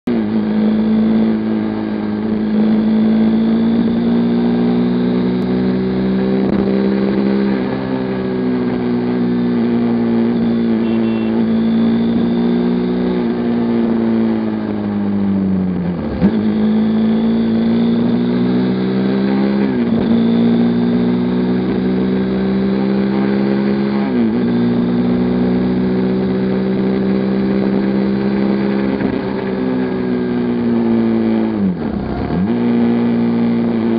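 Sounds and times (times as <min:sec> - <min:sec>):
motorcycle engine running: 0:00.0 - 0:22.5.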